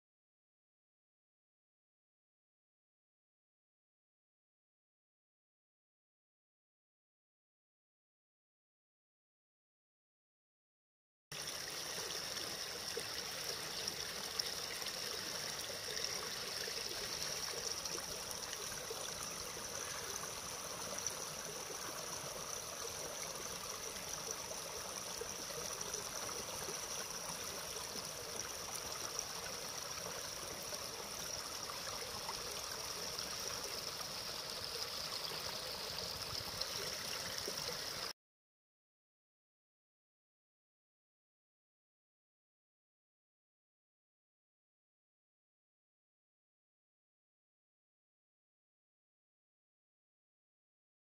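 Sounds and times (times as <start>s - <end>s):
creek water rushing over rocks: 11.6s - 38.1s.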